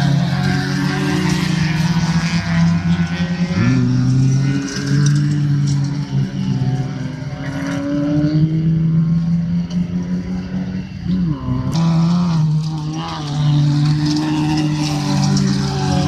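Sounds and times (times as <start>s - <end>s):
race car engines revving: 0.0s - 16.0s.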